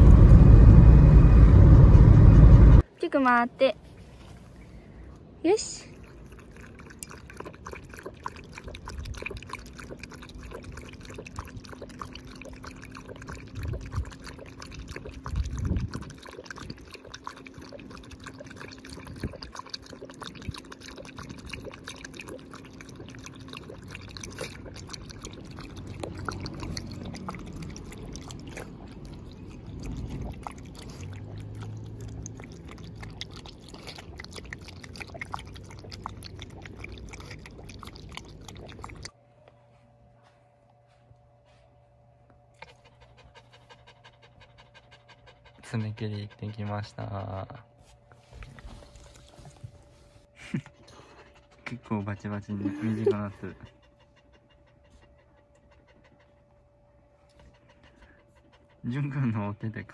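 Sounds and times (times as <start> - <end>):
dog lapping water from metal bowl: 5.6 - 39.2, 42.6 - 47.4.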